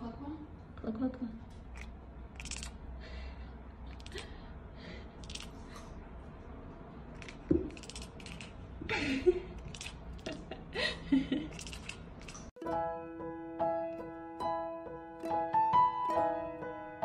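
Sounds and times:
kitten growling calls: 1.7 - 2.8
kitten hissing and spitting: 1.8 - 2.8, 3.9 - 4.4, 5.2 - 5.7, 7.2 - 8.6, 9.5 - 10.4, 11.5 - 12.5.

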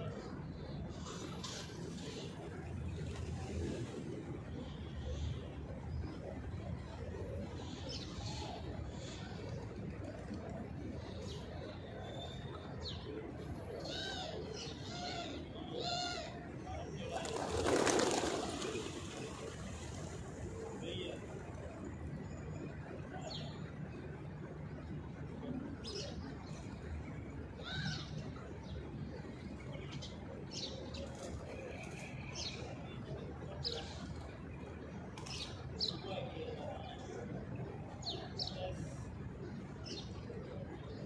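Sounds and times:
birds chirping: 17.1 - 21.2.

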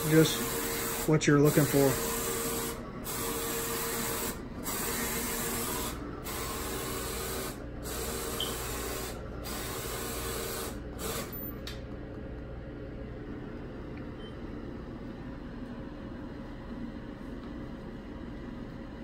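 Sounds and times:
inkjet printer carriage running: 0.0 - 11.1.

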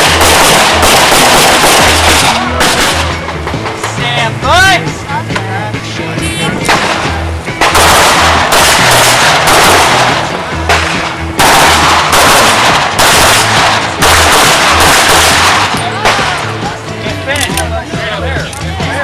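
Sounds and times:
rapid pistol fire: 0.0 - 3.8, 6.7 - 16.4
background music: 0.0 - 19.0.

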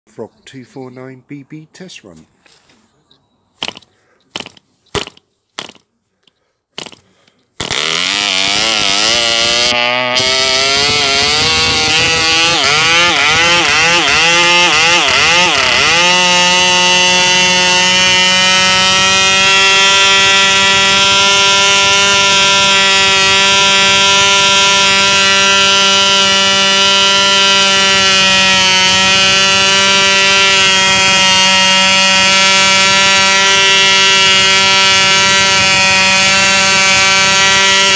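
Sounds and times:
model engine high-pitched buzz: 7.6 - 37.9.

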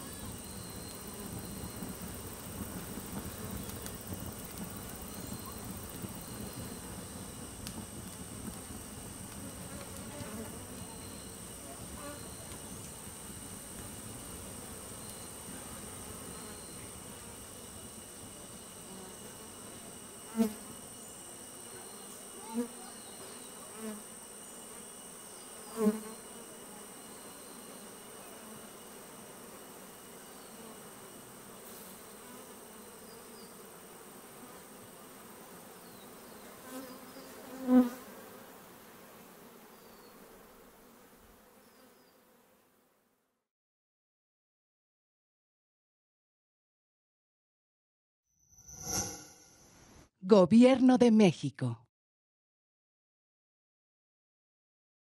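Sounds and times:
high drone of insects: 0.0 - 42.2
bees buzzing past: 0.0 - 42.8.

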